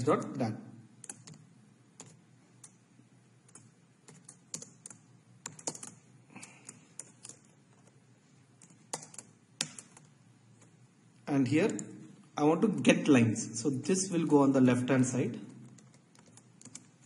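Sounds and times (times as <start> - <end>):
keyboard typing: 1.0 - 2.8, 3.4 - 10.8, 15.4 - 17.0.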